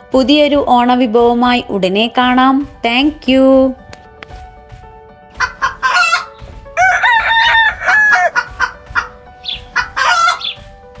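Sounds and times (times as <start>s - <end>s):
faint background music: 0.0s - 11.0s
clucking calls: 5.4s - 6.6s, 7.2s - 10.7s
rooster crowing: 5.5s - 9.2s, 9.8s - 10.6s.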